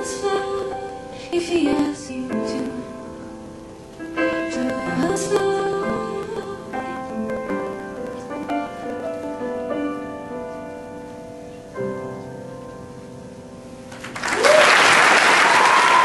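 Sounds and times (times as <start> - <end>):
upright piano playing: 0.0 - 14.3
audience applause: 13.9 - 16.0.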